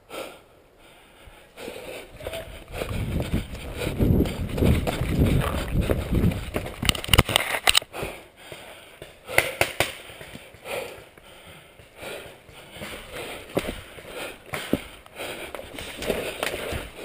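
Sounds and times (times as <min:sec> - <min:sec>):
gear clicks and rustles: 0:02.2 - 0:07.9
sharp knocks and snaps: 0:09.0 - 0:10.4.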